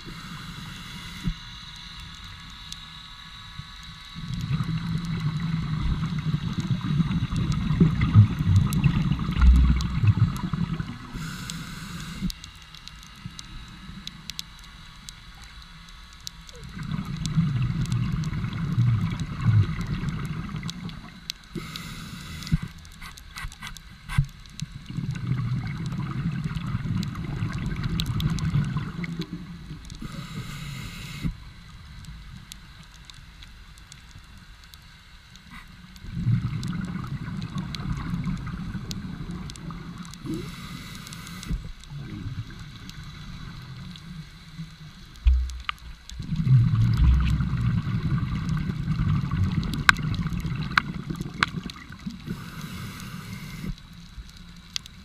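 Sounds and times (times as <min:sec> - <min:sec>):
regulator inhalation hiss: 0:00.0 - 0:03.4, 0:11.1 - 0:12.5, 0:21.5 - 0:24.2, 0:30.0 - 0:31.5, 0:40.2 - 0:42.0, 0:52.2 - 0:53.9
bubbling underwater exhalations: 0:46.2 - 0:52.4.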